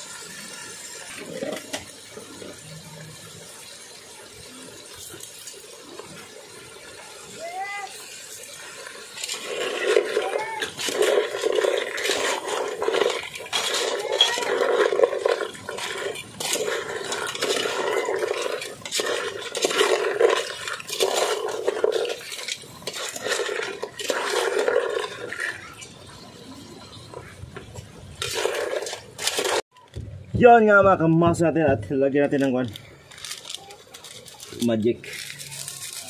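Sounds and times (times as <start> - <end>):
spoon and shells scraping pot: 7.9 - 29.7.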